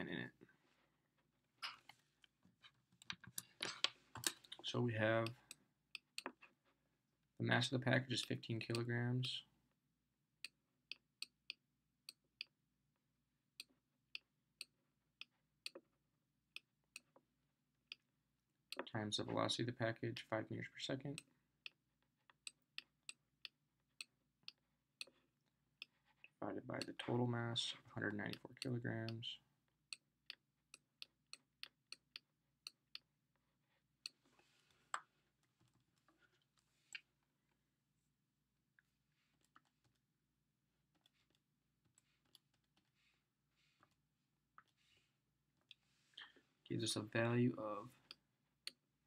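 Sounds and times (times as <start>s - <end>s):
stylus clicking on tablet: 13.6s - 15.8s.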